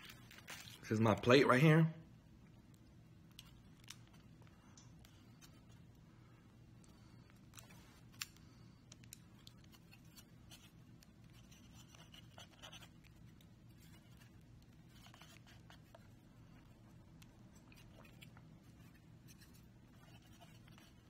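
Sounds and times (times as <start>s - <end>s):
low steady hum: 0.0s - 21.0s
chopsticks clicking and scraping: 6.8s - 21.0s.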